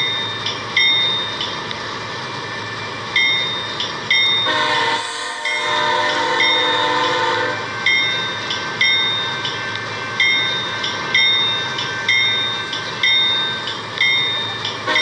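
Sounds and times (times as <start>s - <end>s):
train noise: 0.0s - 15.0s
bell ringing: 3.2s - 15.0s
train horn blast: 4.4s - 7.7s.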